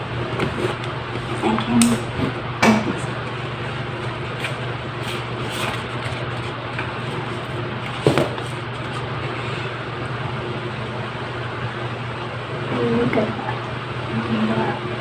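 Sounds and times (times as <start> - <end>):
low background hum: 0.0 - 15.0
paper rustling: 3.3 - 9.5.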